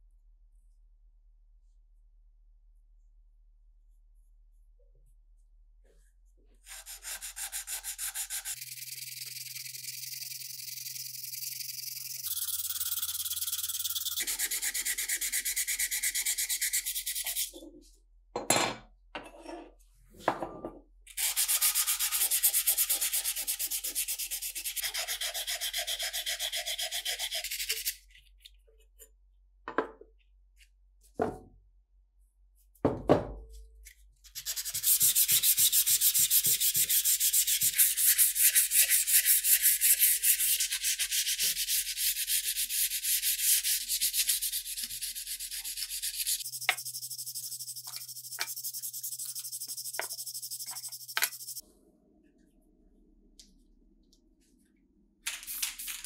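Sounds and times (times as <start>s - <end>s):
sandpaper rubbing on steel: 6.7s - 17.5s, 21.2s - 28.0s, 34.3s - 51.6s.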